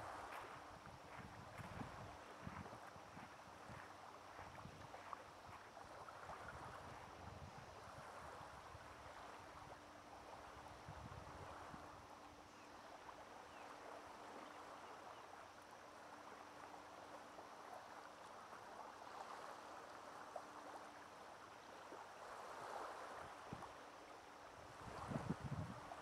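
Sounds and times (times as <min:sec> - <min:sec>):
waves lapping on pebbles: 0:00.0 - 0:06.9, 0:16.0 - 0:26.0.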